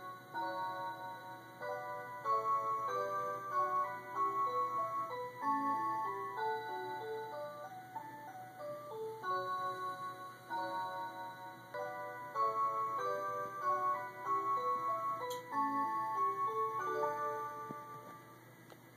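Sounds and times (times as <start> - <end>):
chime-like electronic clock melody: 0.0 - 18.4.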